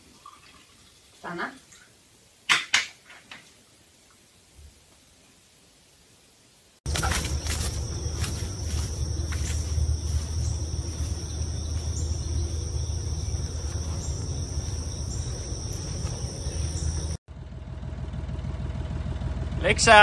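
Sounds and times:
high-pitched insect drone: 6.9 - 17.2
quiet hum: 6.9 - 17.2
low rumble: 6.9 - 18.0.

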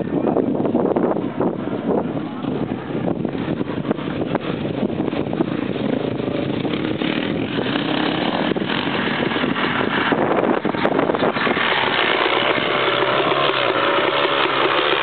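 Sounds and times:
dirt bike engine revving: 3.9 - 15.0.

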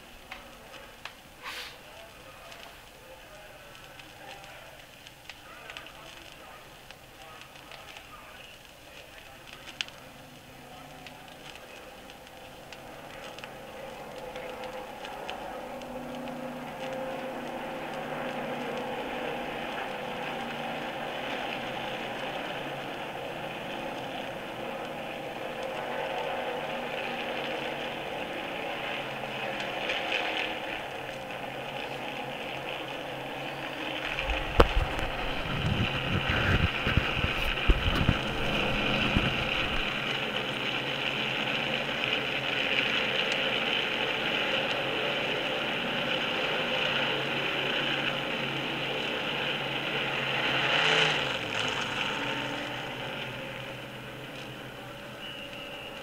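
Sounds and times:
race car engines at speed: 0.0 - 56.0
deep rumble: 9.2 - 43.2.

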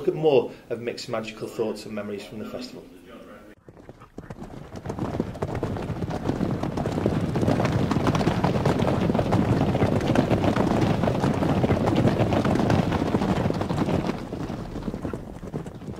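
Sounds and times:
horses galloping: 3.6 - 15.9.

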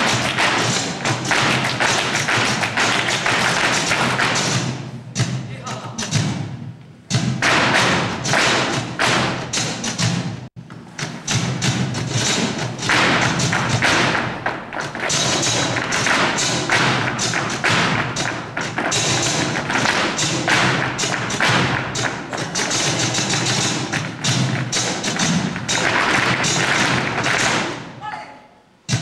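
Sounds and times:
dancers' feet stamping on stage: 0.0 - 4.8
flamenco music: 0.0 - 29.0.

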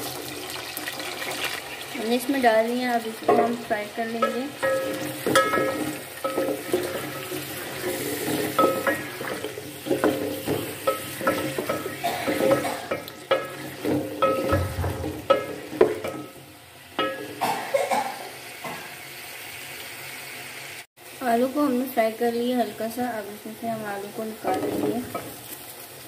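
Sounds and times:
potato slices sizzling in oil: 0.0 - 17.4, 18.2 - 26.0
wooden spoon scraping metal pot: 3.0 - 16.4, 24.4 - 25.6.

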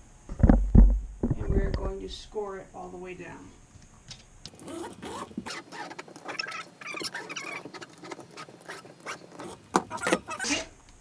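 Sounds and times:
knife scraping vinyl plank: 4.6 - 10.6.

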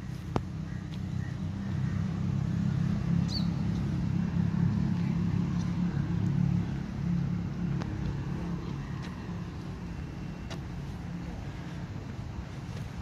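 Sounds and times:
vehicle engine running: 0.0 - 13.0.

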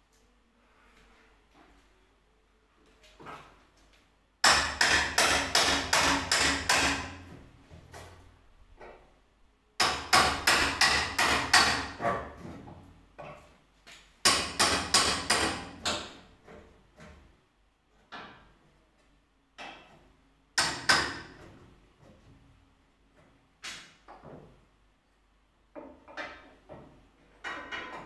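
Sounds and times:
hammer striking: 4.4 - 7.2, 9.8 - 12.0, 14.2 - 16.1.

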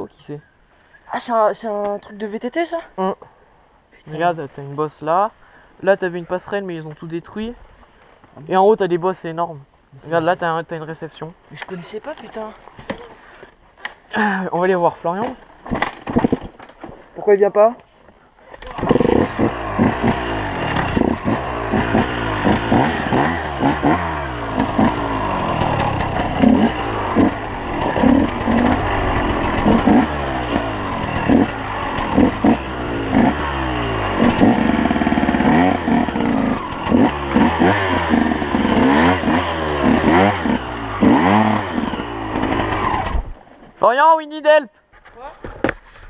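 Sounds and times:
dirt bike engine revving: 18.7 - 43.3.

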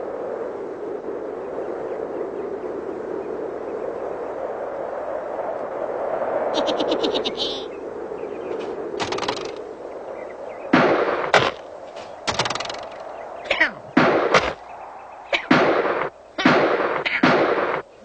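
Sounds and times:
cartoon bangs: 14.0 - 14.6.

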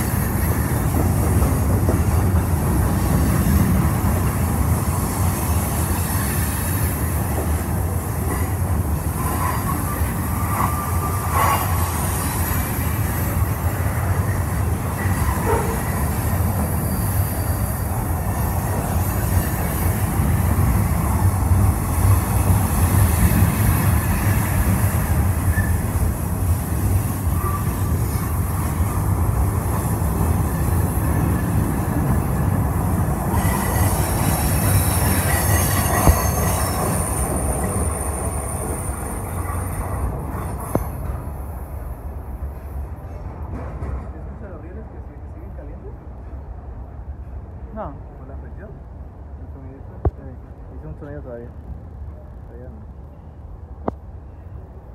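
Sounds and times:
train wheels rumbling on rails: 0.0 - 52.5
high wheel squeal: 8.3 - 13.3, 14.2 - 20.1, 25.4 - 26.0, 27.0 - 28.7, 33.3 - 40.8.

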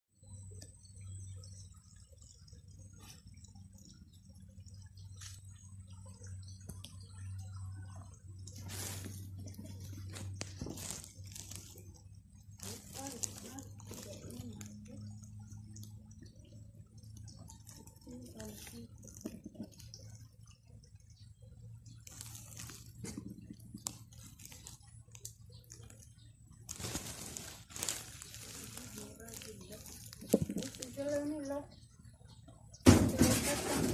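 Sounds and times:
steady low hum: 0.2 - 32.9
rustling of straw nest: 8.4 - 15.2, 21.9 - 31.6.

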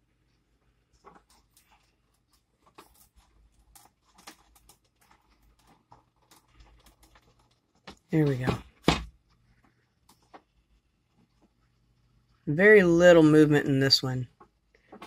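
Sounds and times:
faint low hum: 0.0 - 15.0
small handling clicks and rustles: 0.6 - 11.9, 14.3 - 15.0.

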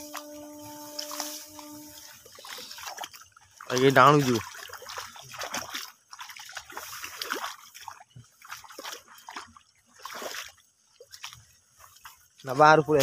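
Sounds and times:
grass swishing against legs: 0.0 - 3.2.

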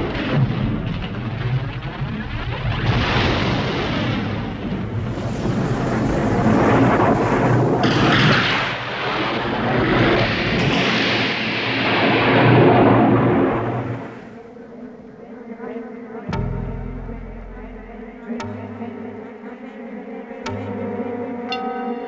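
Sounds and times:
deep booms: 16.3 - 19.0.

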